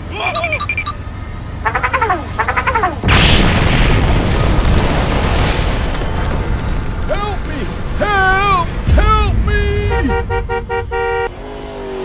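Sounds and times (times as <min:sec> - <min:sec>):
explosion boom: 0:03.0 - 0:11.3
long rumbling noise: 0:03.0 - 0:11.4.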